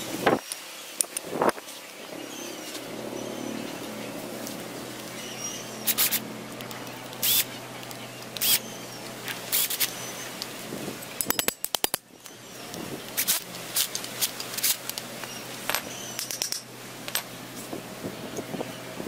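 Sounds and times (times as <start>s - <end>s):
cordless drill driving bolts: 7.2s - 7.4s.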